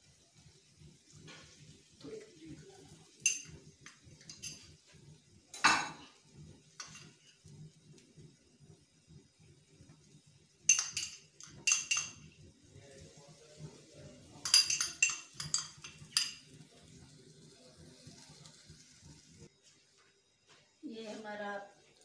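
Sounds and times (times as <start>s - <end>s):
spoon clinking against bowl: 3.2s - 3.6s, 4.2s - 4.7s, 6.8s - 7.2s, 10.7s - 12.3s, 14.4s - 16.4s.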